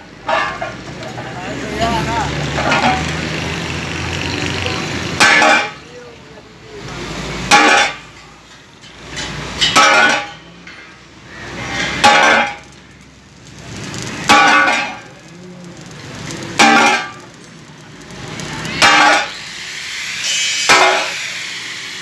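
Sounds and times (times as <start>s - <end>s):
sledgehammer striking steel sheet: 5.1s - 5.8s, 7.4s - 8.2s, 9.2s - 10.4s, 11.7s - 12.7s, 14.2s - 15.1s, 16.6s - 17.3s, 18.7s - 19.4s, 20.2s - 21.3s.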